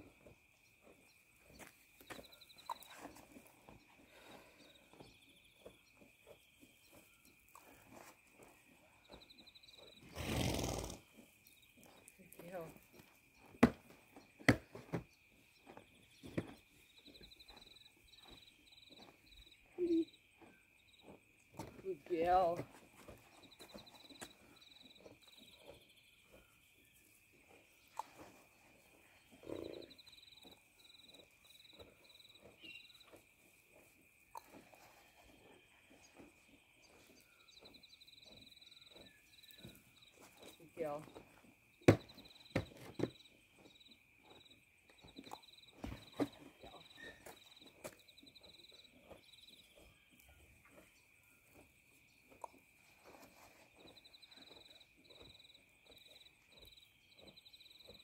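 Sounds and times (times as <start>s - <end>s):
horse snorting: 10.0s - 11.2s, 29.3s - 30.0s.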